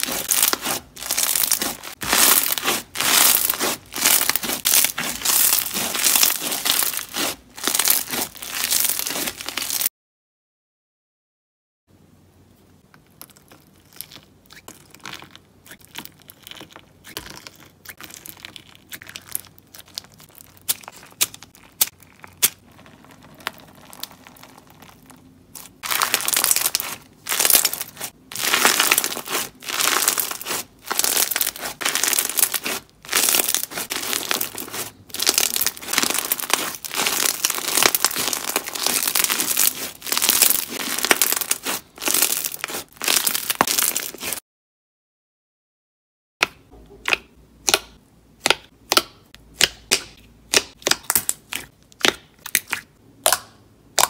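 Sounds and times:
crunchy slime crackling: 0.0s - 9.9s, 13.1s - 44.4s.

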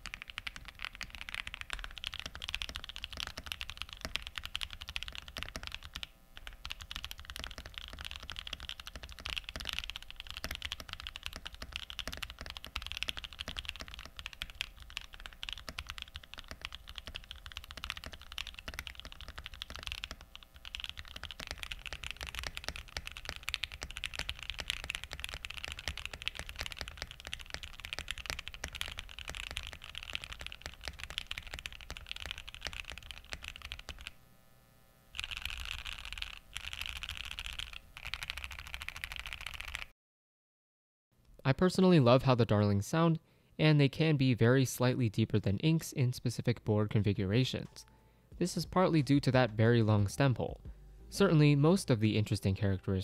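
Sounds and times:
typing on mechanical keyboard: 0.0s - 34.2s, 35.2s - 39.9s.

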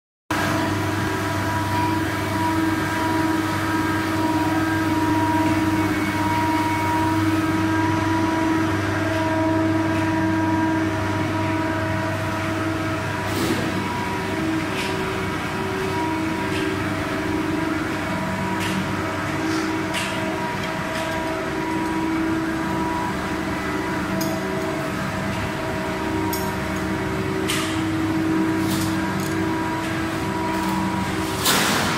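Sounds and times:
machinery motors humming: 0.4s - 31.9s
steady machine tones: 0.6s - 31.2s.

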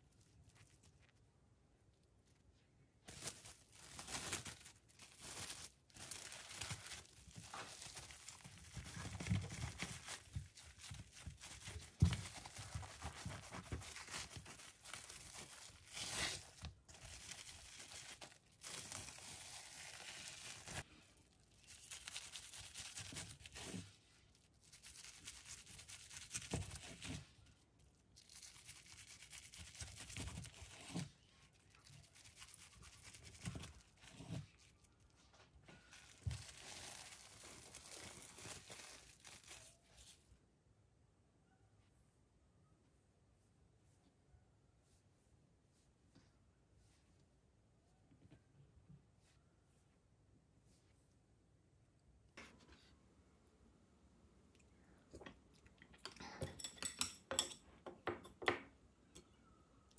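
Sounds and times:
crinkling and rustling: 0.0s - 40.4s.

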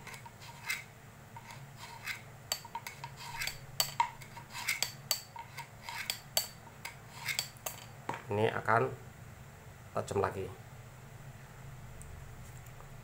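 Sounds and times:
knife scraping through sharpener: 0.0s - 7.9s.

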